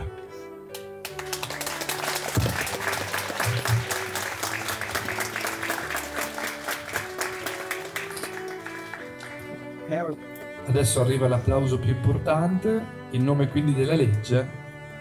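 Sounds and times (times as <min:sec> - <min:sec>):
background music: 0:00.0 - 0:15.0
crowd applauding: 0:00.7 - 0:09.7.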